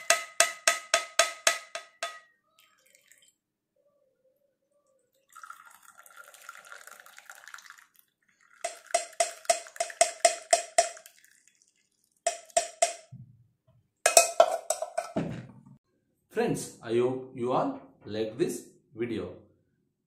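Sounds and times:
liquid pouring through strainer: 2.6s - 3.4s, 5.1s - 12.9s.

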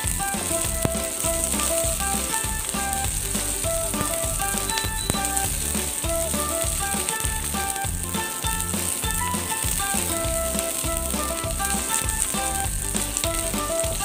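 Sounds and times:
background music with pulsing bass: 0.0s - 14.0s
onion sizzling in oil: 0.0s - 14.0s.

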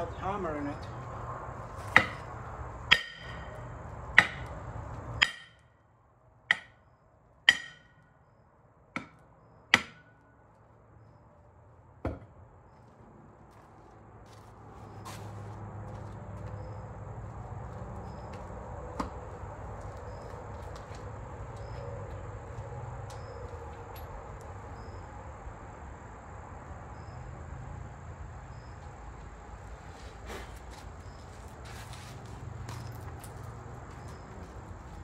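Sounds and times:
hammer blows on metal: 2.9s - 3.6s, 7.5s - 8.0s.

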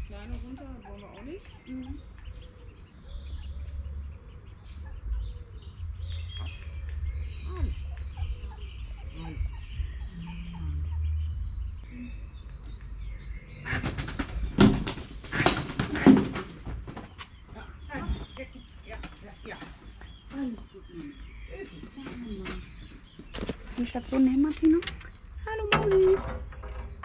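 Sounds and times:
ducklings peeping: 0.0s - 16.7s.

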